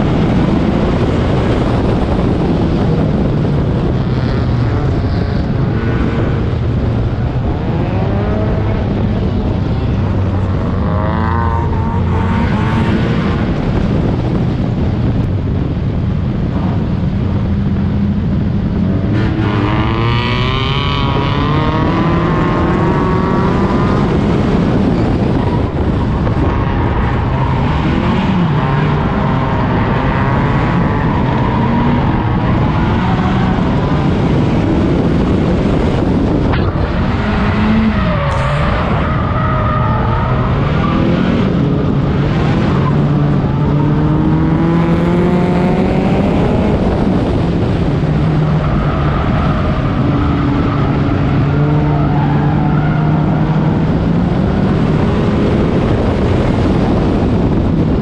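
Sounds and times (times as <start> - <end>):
race car engine revving: 0.0 - 15.0, 16.4 - 58.0
other race car engines: 0.0 - 58.0.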